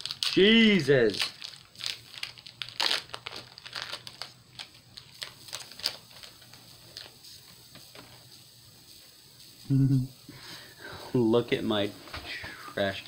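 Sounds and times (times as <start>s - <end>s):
foil wrapper crinkling and tearing: 0.0s - 8.4s.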